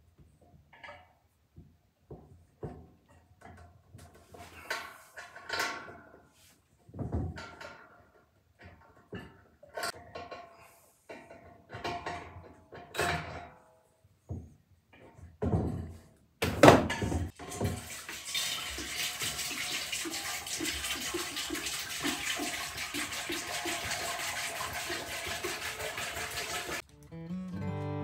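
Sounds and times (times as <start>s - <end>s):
water splashing into metal tank: 16.6s - 26.8s.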